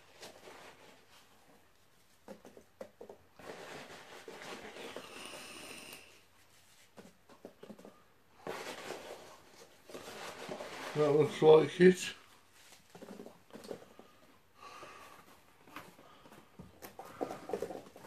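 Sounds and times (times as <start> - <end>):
soft rustling of packing: 0.0 - 18.0.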